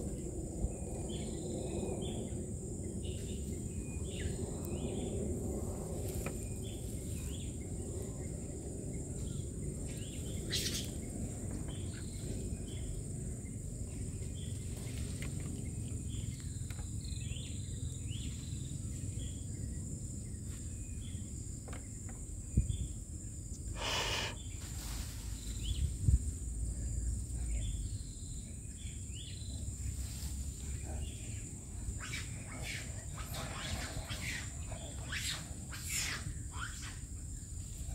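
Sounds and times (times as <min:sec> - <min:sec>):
high insect drone: 0:00.0 - 0:37.9
short bird chirps: 0:23.8 - 0:24.4.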